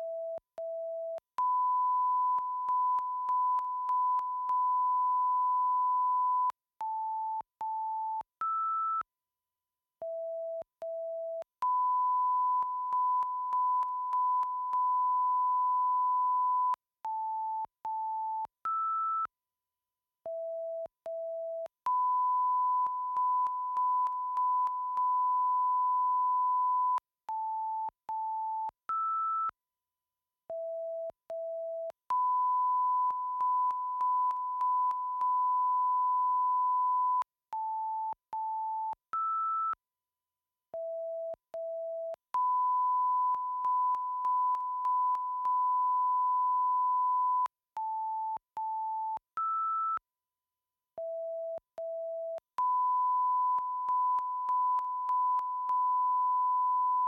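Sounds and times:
short beeps at different pitches: 0.0 - 9.0, 10.1 - 19.3, 20.3 - 29.6, 30.5 - 39.8, 40.8 - 50.0, 51.0 - 57.0.

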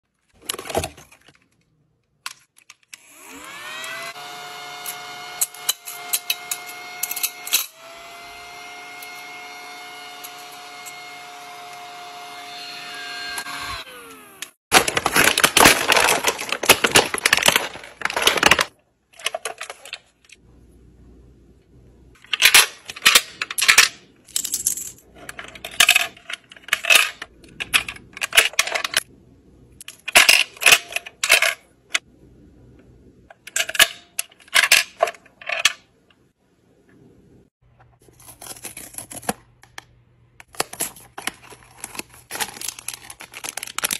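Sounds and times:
plastic packaging crinkling: 14.7 - 19.9, 40.5 - 43.9
plastic clicking and clattering: 14.7 - 20.4.

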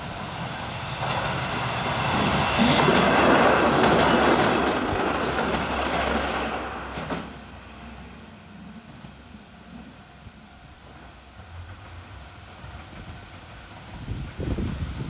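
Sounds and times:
train wheels rumbling over track: 0.0 - 15.0
high wheel squeal: 1.9 - 7.8.

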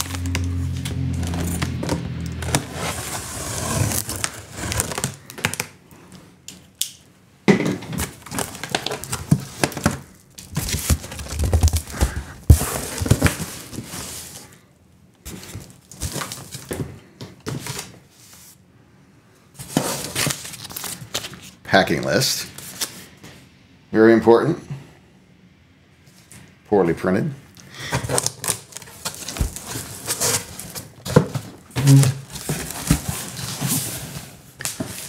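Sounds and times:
cardboard flaps crinkling: 0.0 - 5.8, 7.9 - 14.5, 19.6 - 21.6, 27.9 - 35.0.

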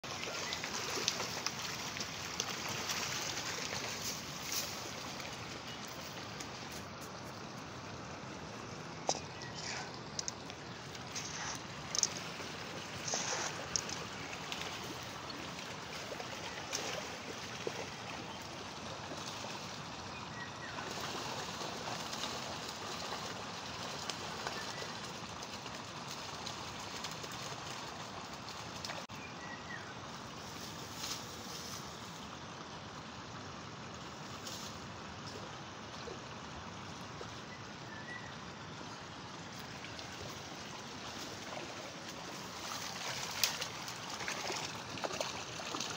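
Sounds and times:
stream water rushing: 0.0 - 45.9.

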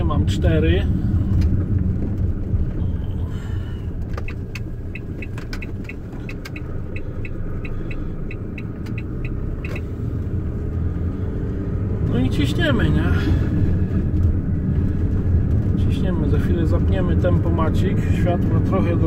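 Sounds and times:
engine and road rumble: 0.0 - 19.0
turn signal ticking: 3.8 - 12.5.

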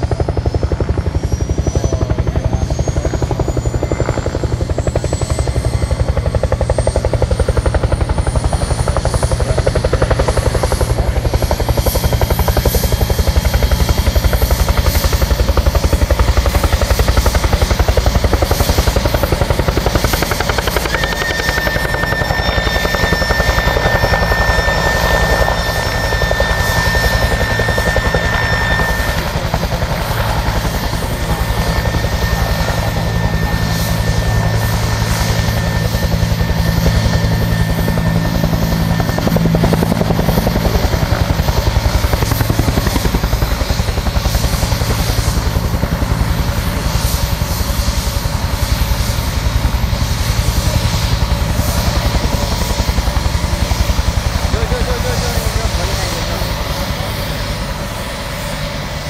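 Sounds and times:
helicopter rotor chopping: 0.0 - 59.0
high-pitched whine: 18.6 - 59.0.

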